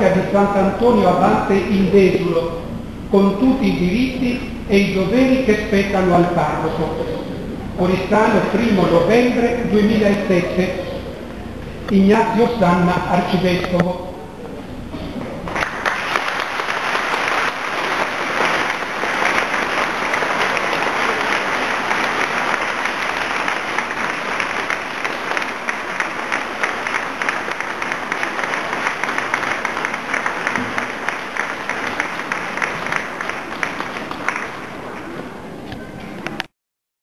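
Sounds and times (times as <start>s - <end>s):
crowd applauding: 15.4s - 35.2s.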